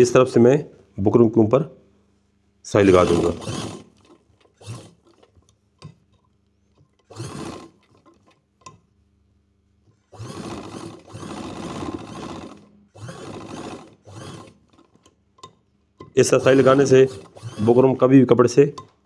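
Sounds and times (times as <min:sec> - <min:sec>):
sewing machine stitching: 0:02.8 - 0:05.3, 0:06.9 - 0:08.4, 0:10.1 - 0:15.0, 0:16.3 - 0:18.1.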